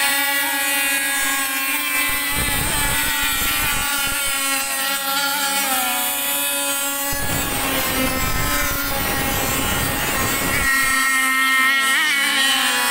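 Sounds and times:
high buzzing boat engine: 0.0s - 12.9s
rough rushing noise: 6.8s - 11.0s.

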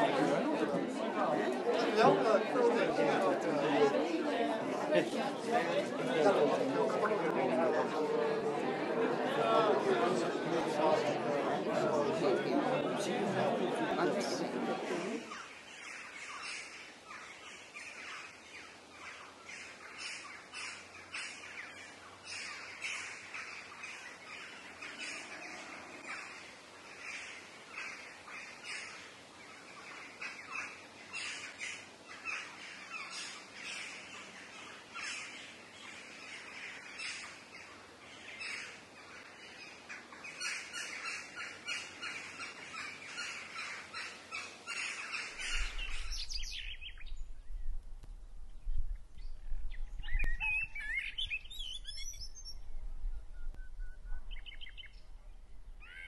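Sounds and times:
birds chirping: 15.2s - 47.8s, 48.6s - 52.7s, 53.4s - 56.0s.

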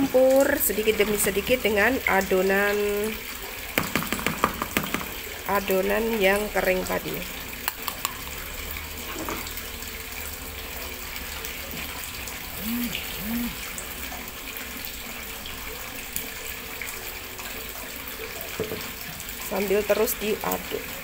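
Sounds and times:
faint rising and falling tones: 12.3s - 13.9s.

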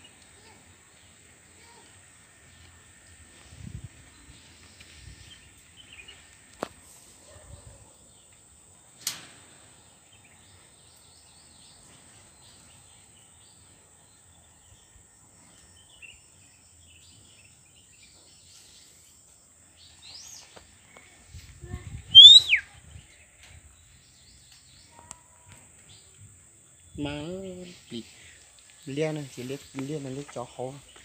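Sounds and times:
bird chirps: 22.2s - 22.6s.

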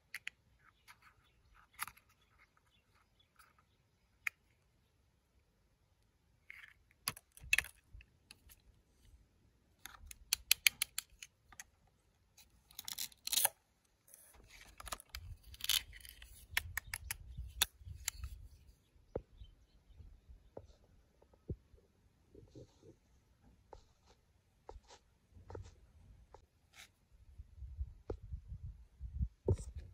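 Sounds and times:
plastic toys clicking and clattering: 9.8s - 11.7s.

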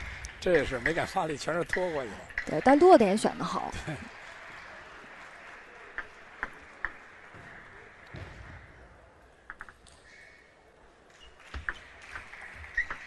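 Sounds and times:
faint hall background noise: 0.0s - 13.0s
table tennis ball bouncing: 11.5s - 13.0s.

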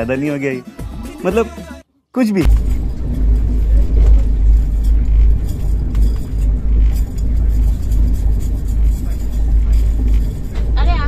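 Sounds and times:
train rumble inside coach: 2.5s - 11.0s.

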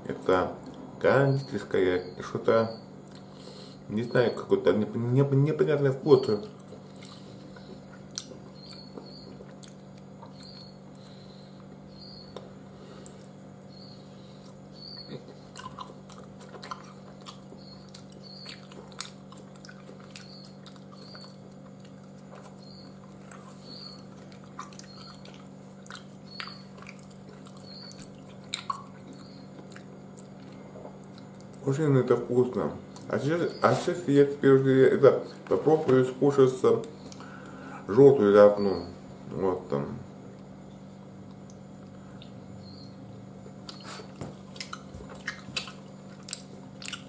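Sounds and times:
person chewing: 3.0s - 3.8s, 6.3s - 31.7s, 32.8s - 33.2s, 36.8s - 37.7s, 43.4s - 47.0s.

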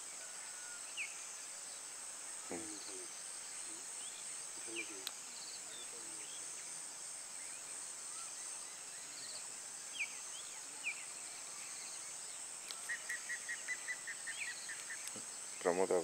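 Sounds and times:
insects droning: 0.0s - 16.0s
bird chirps: 7.4s - 16.0s.

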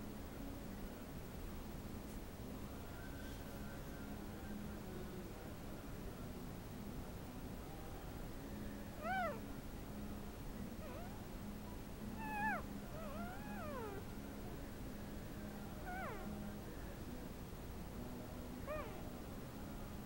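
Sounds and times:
steady low hum: 0.0s - 20.0s
puppies squeaking and whining: 10.8s - 11.2s, 12.2s - 14.0s, 15.9s - 16.2s.

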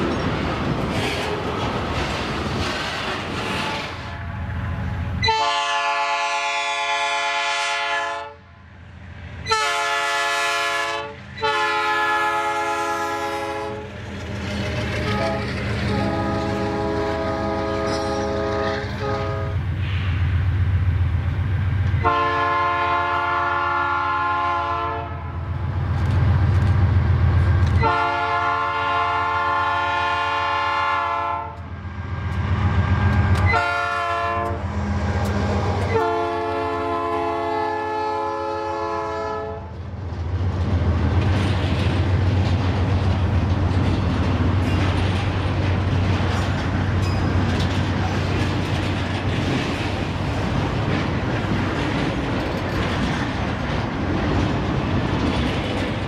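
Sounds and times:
low rumble of passing train: 0.0s - 56.0s
locomotive horn blasts: 5.2s - 8.5s, 9.5s - 13.9s, 15.0s - 19.6s, 22.0s - 25.4s, 27.8s - 31.6s, 33.4s - 34.6s, 35.5s - 39.7s.

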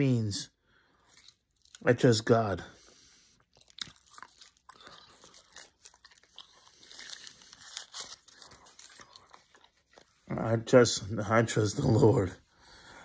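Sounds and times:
person chewing crunchy snack: 1.0s - 1.9s, 2.8s - 10.3s.

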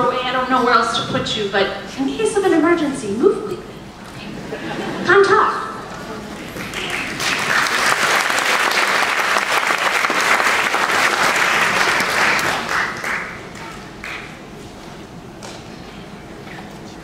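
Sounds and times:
audience applauding: 6.2s - 14.4s.

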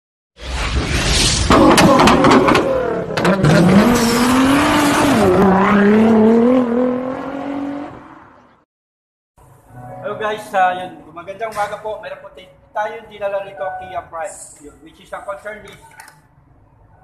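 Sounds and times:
car engine revving: 1.5s - 8.5s.

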